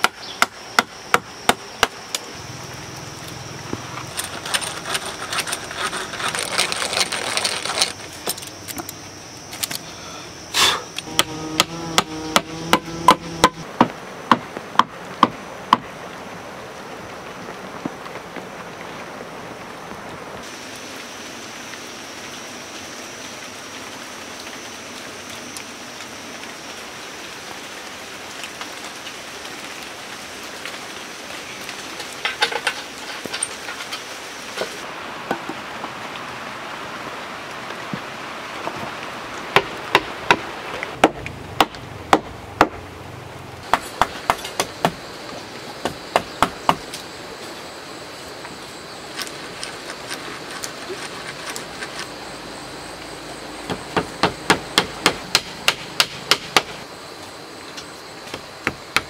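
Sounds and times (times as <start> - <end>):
steady outdoor hiss: 0.0 - 59.0
wooden poles knocking: 11.0 - 15.9, 45.8 - 46.9, 53.7 - 56.8.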